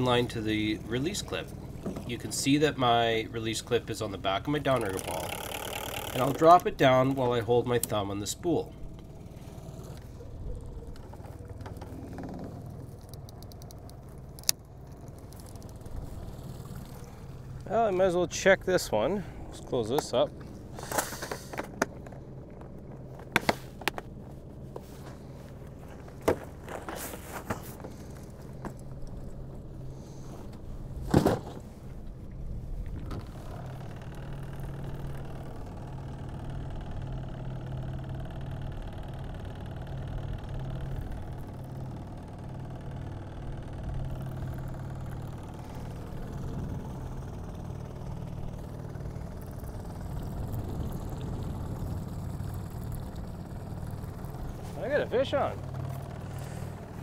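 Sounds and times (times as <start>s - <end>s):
outboard motor running: 0.0s - 57.0s.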